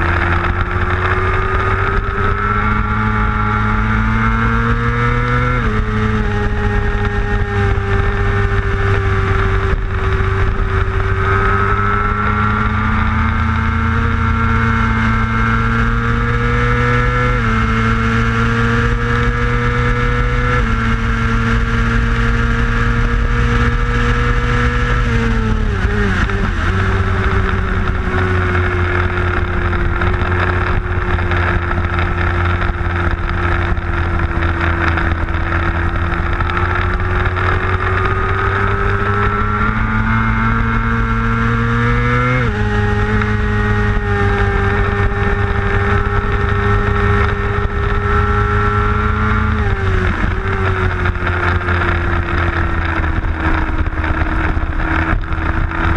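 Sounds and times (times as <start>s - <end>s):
motorcycle engine at racing speed: 0.0s - 55.9s
wind rush: 18.9s - 55.9s.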